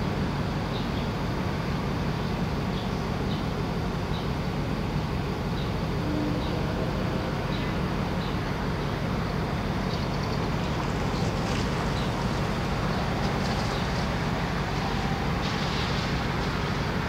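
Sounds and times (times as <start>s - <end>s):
diesel railcar rumble: 0.0s - 17.0s.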